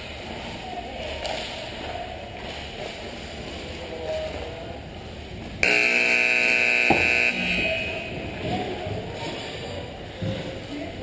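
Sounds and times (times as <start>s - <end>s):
rink background noise: 0.0s - 11.0s
electric game buzzer: 5.6s - 8.2s.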